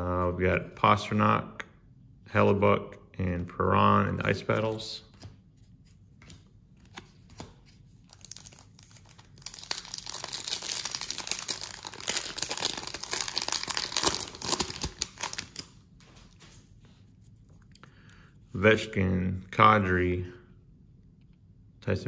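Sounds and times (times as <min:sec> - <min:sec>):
foil wrapper crackling and tearing: 0:08.1 - 0:15.7.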